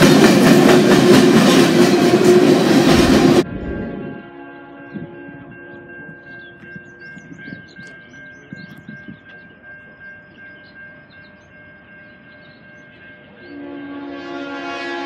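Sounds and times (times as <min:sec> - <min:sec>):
locomotive horn: 0:00.0 - 0:06.0, 0:13.3 - 0:15.0
crossing warning bell ringing: 0:00.0 - 0:15.0.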